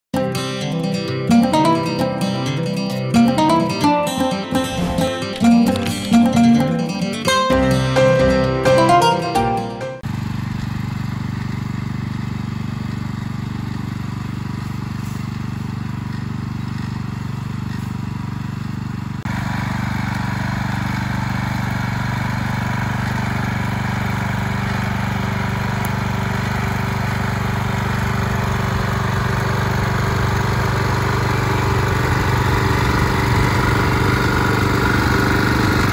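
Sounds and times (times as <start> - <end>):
guitar music: 0.2 - 10.0
small engine running: 0.8 - 35.9.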